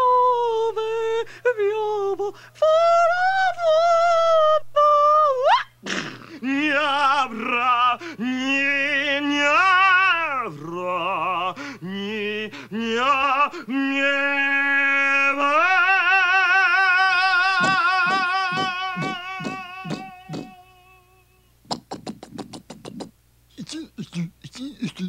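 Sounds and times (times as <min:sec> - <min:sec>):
wordless warbling voices: 0:17.5 - 0:21.0, 0:21.7 - 0:25.0.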